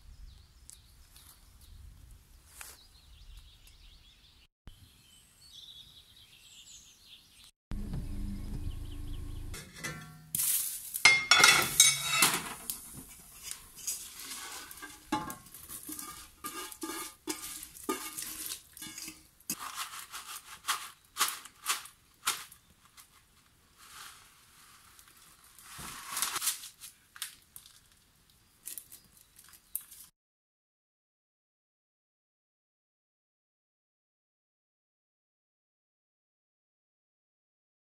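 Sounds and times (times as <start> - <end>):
pot and utensils knocking and scraping: 9.6 - 10.4, 11.0 - 21.4
sizzling: 10.0 - 22.6, 23.8 - 26.6
rustling: 10.3 - 28.0, 28.6 - 30.1.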